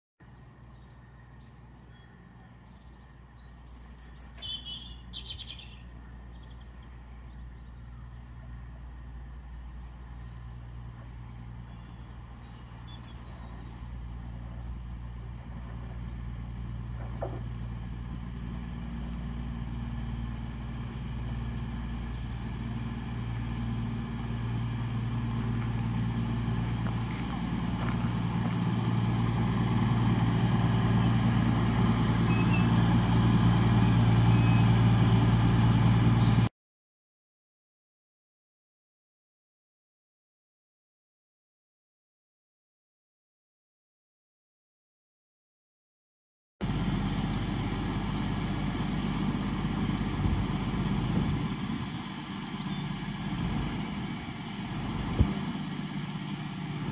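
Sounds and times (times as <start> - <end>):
birds chirping: 0.2 - 29.1, 32.2 - 35.2, 36.0 - 36.5, 46.7 - 56.9
diesel train engines humming: 0.2 - 36.5, 46.6 - 56.9.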